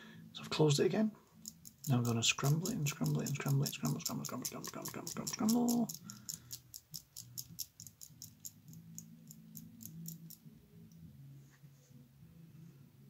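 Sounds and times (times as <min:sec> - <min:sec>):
padlock number wheels clicking: 0:01.4 - 0:10.4.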